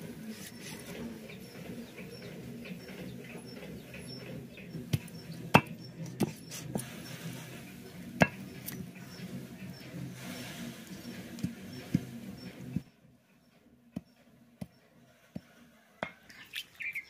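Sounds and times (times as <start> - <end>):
blade chopping on wooden block: 4.9 - 6.8.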